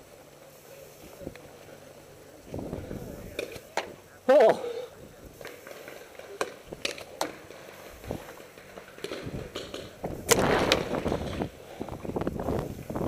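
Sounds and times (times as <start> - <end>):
paintball markers firing: 5.4 - 11.6.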